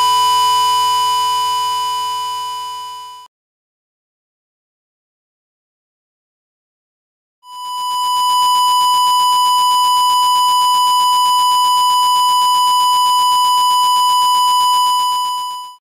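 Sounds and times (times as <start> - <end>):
steady test tone: 0.0 - 3.3.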